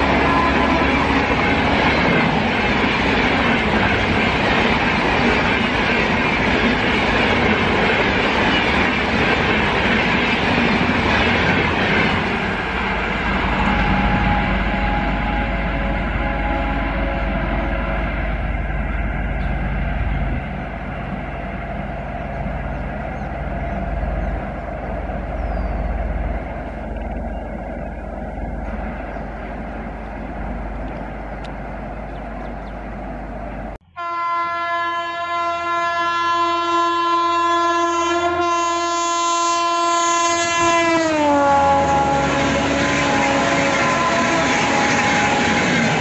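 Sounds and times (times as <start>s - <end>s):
locomotive horn: 0.0s - 4.5s, 11.2s - 20.3s, 33.8s - 46.0s
train rumble: 0.0s - 46.0s.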